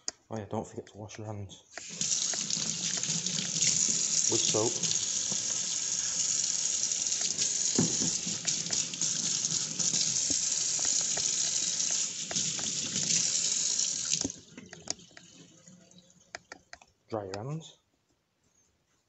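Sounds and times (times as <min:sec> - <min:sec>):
tap running into metal sink: 0:07.0 - 0:13.2.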